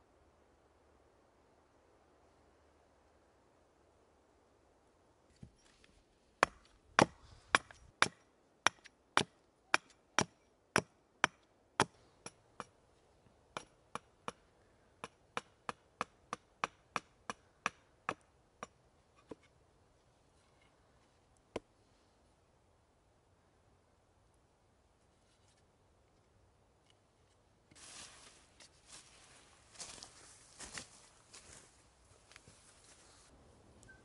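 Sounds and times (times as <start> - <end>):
hatchet chopping wood: 6.4 - 12.7, 13.6 - 14.4, 15.0 - 18.8.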